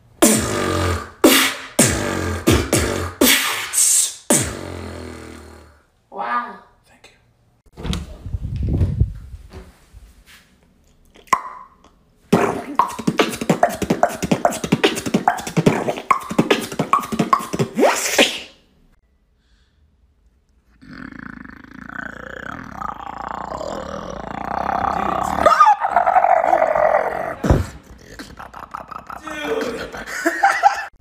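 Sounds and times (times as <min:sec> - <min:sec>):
person beatboxing: 0:00.2 - 0:05.8, 0:12.3 - 0:18.6, 0:27.3 - 0:30.1
raspy vocal sound: 0:12.3 - 0:18.5, 0:20.8 - 0:30.3.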